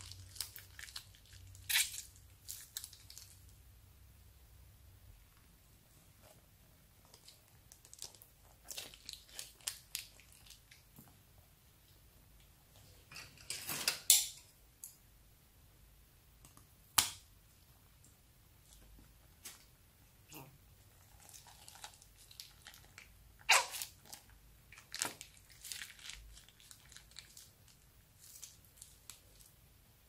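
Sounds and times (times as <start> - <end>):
plastic bag crinkling: 0.0 - 3.5, 7.0 - 10.8, 21.0 - 29.5.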